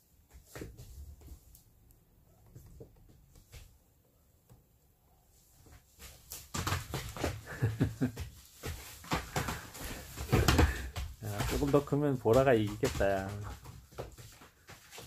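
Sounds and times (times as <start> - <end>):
dogs scuffling on plastic tarp: 6.0 - 15.0.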